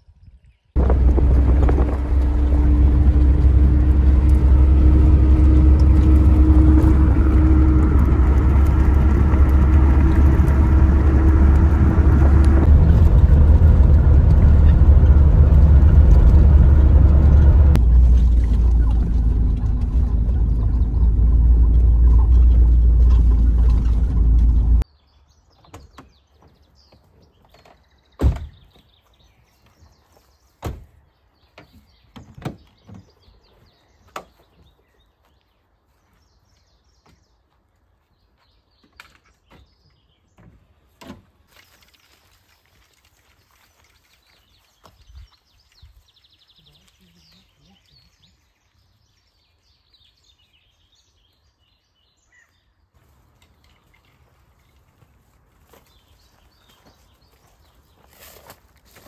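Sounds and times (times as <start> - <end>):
motor rumbling and humming: 0.8 - 24.8.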